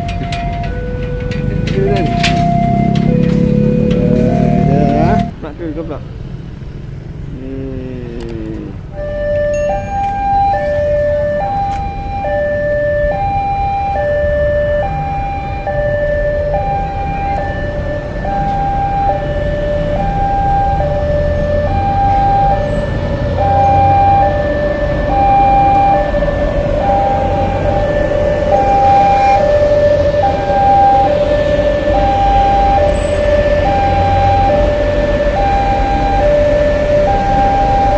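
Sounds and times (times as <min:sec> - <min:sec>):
two-tone crossing alarm: 0:00.0 - 0:05.4, 0:08.9 - 0:37.9
train rumbling past: 0:00.0 - 0:06.8, 0:14.9 - 0:37.9.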